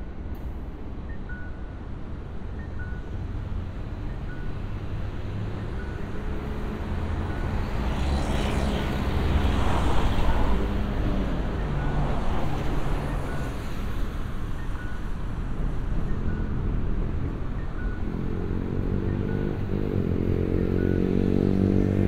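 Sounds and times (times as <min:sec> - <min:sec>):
low hum of engines: 0:00.0 - 0:22.0
cars passing close by: 0:04.6 - 0:22.0.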